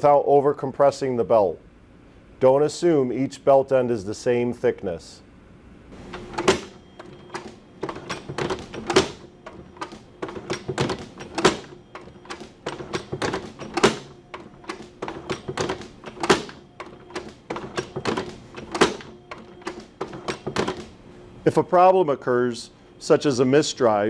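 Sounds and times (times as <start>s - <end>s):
hydraulic power pack humming: 5.9s - 21.5s.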